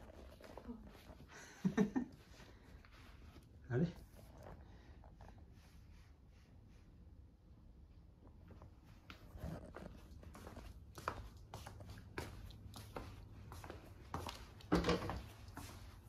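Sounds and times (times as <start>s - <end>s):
slipper footsteps on wooden floor: 8.6s - 16.0s.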